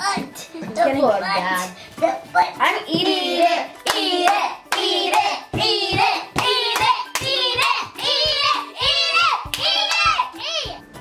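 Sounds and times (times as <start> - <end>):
rhythmic hand claps: 2.9 - 11.0.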